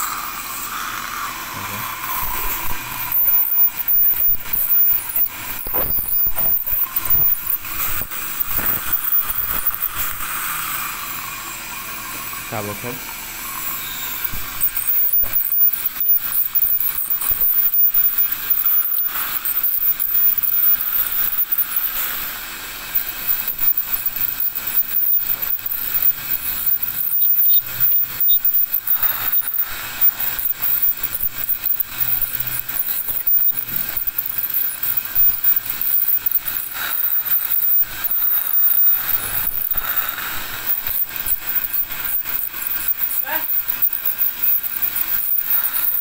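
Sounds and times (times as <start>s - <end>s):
dental scaler whining: 0.0s - 46.0s
scraping on teeth: 1.7s - 10.3s, 23.0s - 46.0s.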